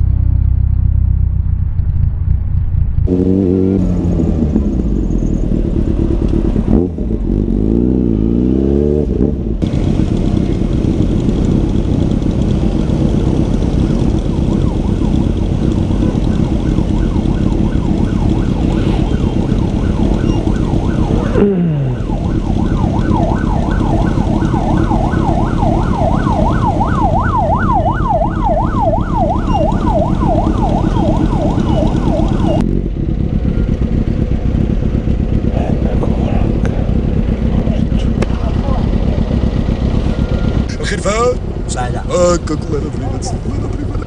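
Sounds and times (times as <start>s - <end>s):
idling motorcycles and traffic: 0.0s - 44.0s
ambulance siren yelping: 13.7s - 32.6s
sound dropping in pitch: 14.0s - 32.8s.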